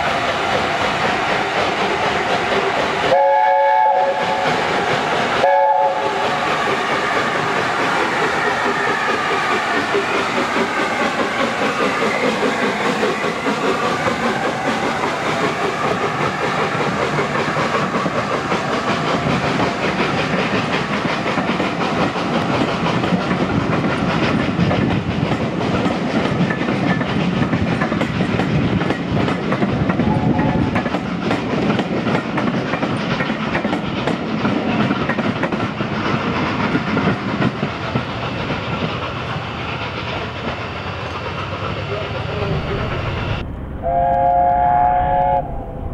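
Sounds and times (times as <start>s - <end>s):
train coaches rumbling past: 0.0s - 45.9s
steam locomotive chime whistle: 3.1s - 4.6s, 5.4s - 7.5s, 43.8s - 45.7s.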